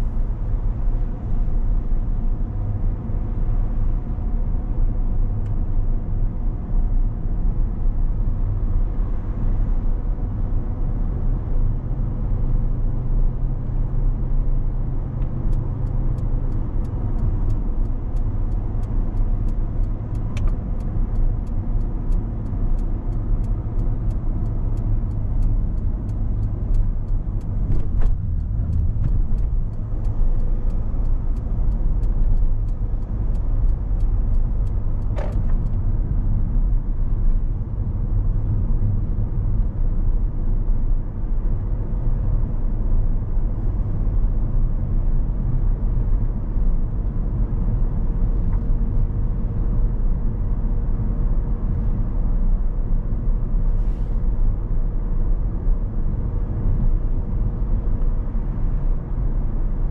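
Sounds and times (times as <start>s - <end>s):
car engine and tyre noise: 0.0s - 59.9s
faint regular ticking: 15.5s - 35.7s.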